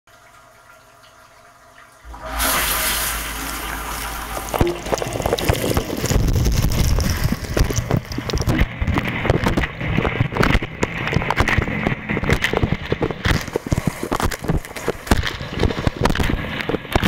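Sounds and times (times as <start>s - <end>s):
wash pump humming: 2.0s - 15.7s
water spray spattering: 2.1s - 8.6s.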